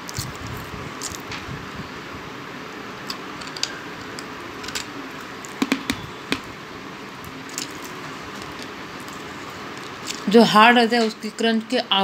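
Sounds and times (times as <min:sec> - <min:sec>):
hard clay crunching when chewed: 0:00.0 - 0:01.3.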